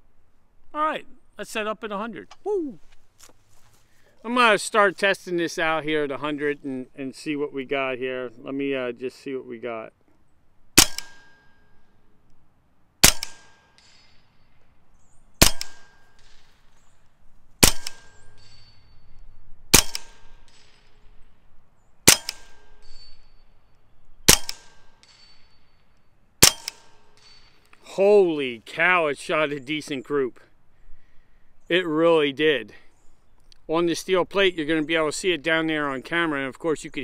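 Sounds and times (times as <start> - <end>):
air rifle shots: 10.8 - 11.6, 13.0 - 14.4, 15.4 - 16.8, 17.6 - 18.8, 19.7 - 21.3, 22.0 - 23.1, 24.2 - 25.4, 26.4 - 27.7.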